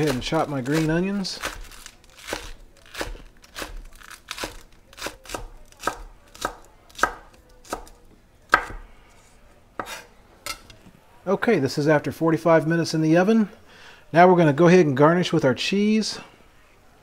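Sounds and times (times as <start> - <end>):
knife chopping on wooden board: 0.0 - 7.9, 8.5 - 8.8, 9.8 - 10.0.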